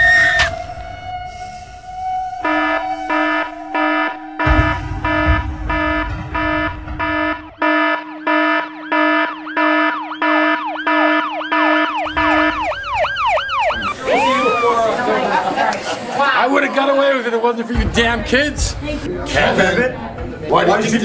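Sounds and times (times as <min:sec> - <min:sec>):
low rumble: 0:00.0 - 0:08.9, 0:12.0 - 0:15.0
electronic alarm beeping: 0:00.0 - 0:14.8
siren swooping: 0:00.0 - 0:15.4.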